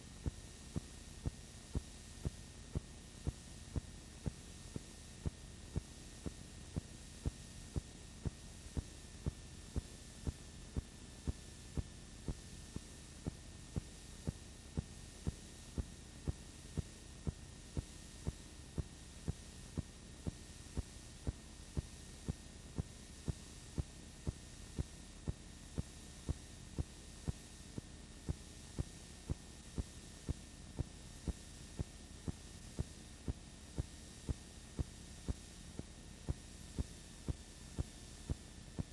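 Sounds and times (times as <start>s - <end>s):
electrical hum and hiss: 0.0s - 38.9s.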